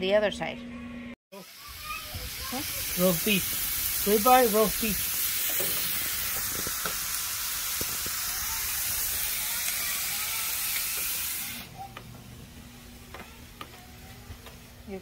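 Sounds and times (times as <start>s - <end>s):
low steady grill hum: 0.0s - 15.0s
steaks sizzling on a grill: 1.4s - 11.7s
grill lid closing: 5.4s - 7.1s.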